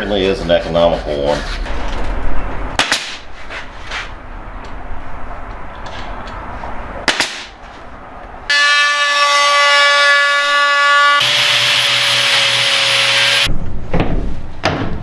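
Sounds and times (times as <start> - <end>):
angle grinder whining: 10.2 - 13.5
grinder disc grinding wood: 10.9 - 13.5.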